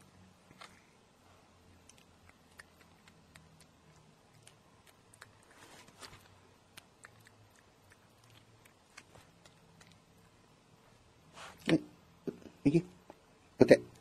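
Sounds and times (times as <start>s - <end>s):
cat chewing crunchy treat: 1.7s - 10.4s.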